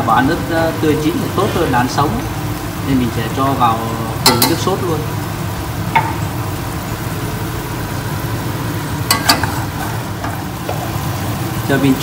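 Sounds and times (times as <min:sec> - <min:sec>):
sauce sizzling in a pan: 0:00.0 - 0:12.0
utensil stirring sauce: 0:01.2 - 0:12.0
utensil clinking against pan: 0:04.2 - 0:04.7, 0:09.1 - 0:10.9.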